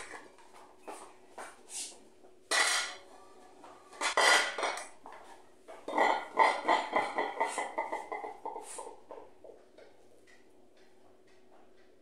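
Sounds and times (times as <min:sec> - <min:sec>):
metal pots and ladle clattering: 0:02.5 - 0:03.1, 0:04.0 - 0:05.0.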